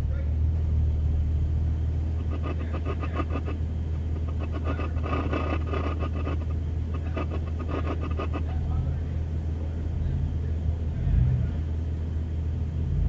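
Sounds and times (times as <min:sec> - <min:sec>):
truck engine idling: 0:00.0 - 0:13.0
crackly higher noise: 0:02.2 - 0:08.6.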